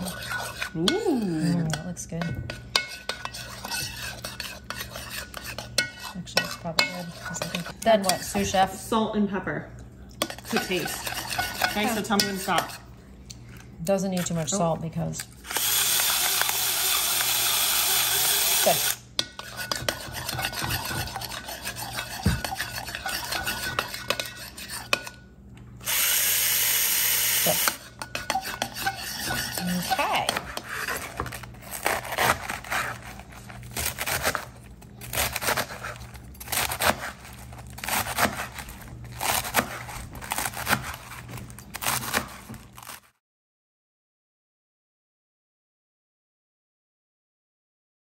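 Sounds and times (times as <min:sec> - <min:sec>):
spoon stirring in ceramic bowl: 0:00.0 - 0:08.8, 0:10.1 - 0:14.8, 0:18.8 - 0:25.5, 0:27.4 - 0:32.0
knife chopping on cutting board: 0:19.7 - 0:22.8, 0:39.2 - 0:42.6.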